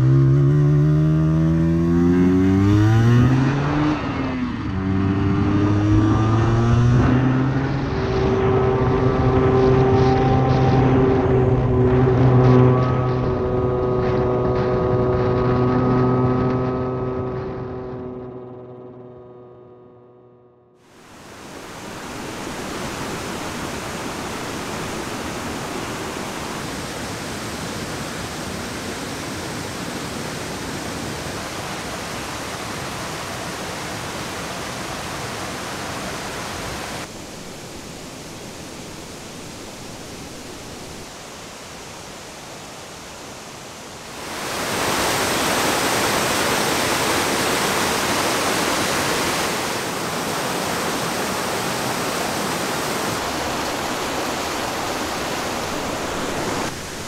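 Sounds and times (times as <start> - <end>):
stream rushing over rocks: 20.9 - 57.0.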